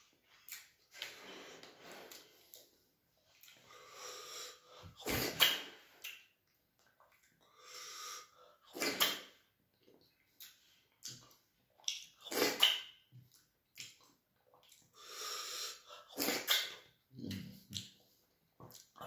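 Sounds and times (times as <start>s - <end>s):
soft breathy sounds: 0.0s - 6.3s
loud slurps: 8.7s - 9.4s, 12.3s - 12.8s, 15.5s - 16.8s.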